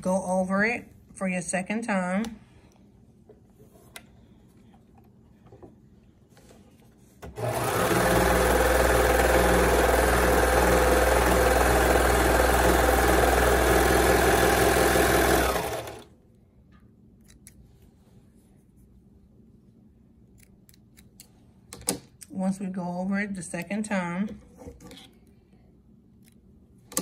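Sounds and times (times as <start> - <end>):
serger sewing machine running: 7.4 - 16.1.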